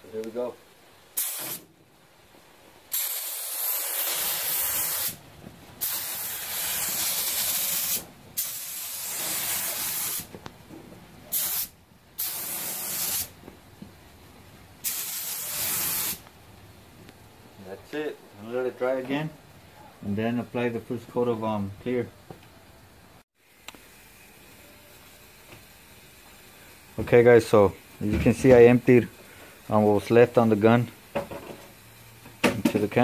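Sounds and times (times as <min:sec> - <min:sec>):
paint spray gun hissing: 0:01.1 - 0:01.7, 0:02.9 - 0:05.2, 0:05.8 - 0:10.3, 0:11.3 - 0:13.4, 0:14.8 - 0:16.3.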